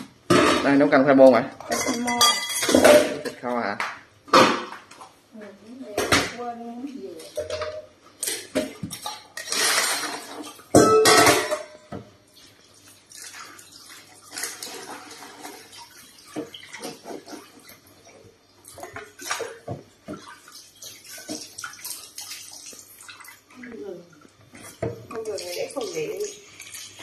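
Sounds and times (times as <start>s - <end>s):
basket and pot clattering: 7.2s - 12.1s
tap water splashing into sink: 10.3s - 27.0s.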